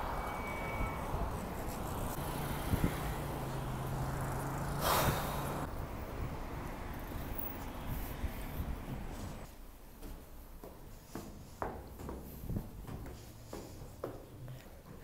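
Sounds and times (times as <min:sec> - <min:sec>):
wind on microphone: 0:00.0 - 0:03.3, 0:04.9 - 0:09.4
puff of breath: 0:04.8 - 0:05.6.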